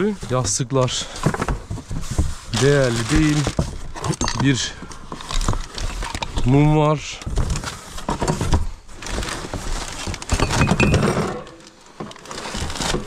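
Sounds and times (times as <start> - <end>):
rustling: 0.0 - 13.0
knocks and clinks of items: 3.4 - 6.4, 10.2 - 12.2.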